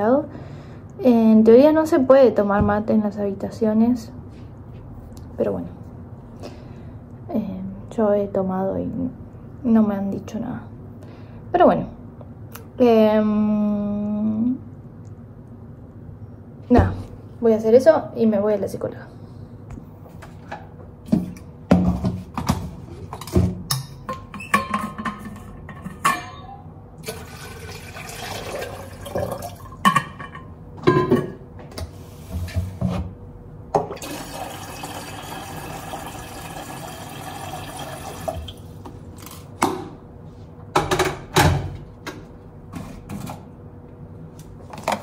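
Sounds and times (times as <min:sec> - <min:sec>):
water pouring into a container: 0:27.0 - 0:29.7, 0:34.0 - 0:38.7.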